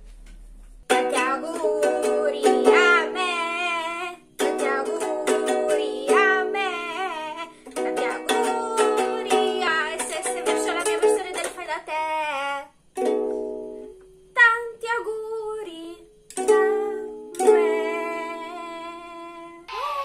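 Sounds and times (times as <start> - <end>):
ukulele strummed: 0.8 - 12.0, 13.0 - 14.6, 16.3 - 19.6
woman singing: 0.9 - 12.8, 14.3 - 19.7.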